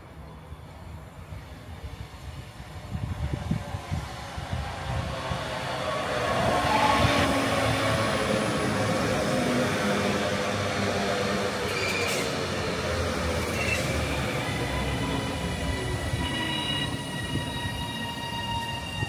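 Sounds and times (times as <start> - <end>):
train wheels rumbling on rails: 1.5 - 19.0
high wheel squeals: 11.6 - 12.4, 13.4 - 19.0.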